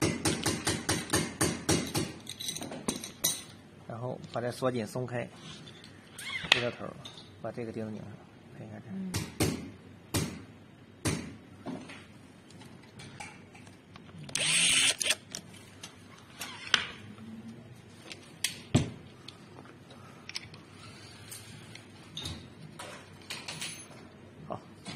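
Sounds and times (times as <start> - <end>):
clicks and knocks of handled parts: 1.8 - 3.6, 18.0 - 20.7, 21.3 - 24.2.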